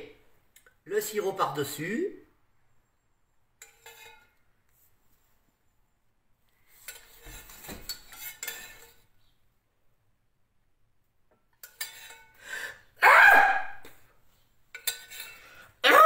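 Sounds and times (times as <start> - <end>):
metal spoon scraping a saucepan: 3.6 - 4.4, 6.7 - 9.2, 11.6 - 12.4, 14.7 - 15.7.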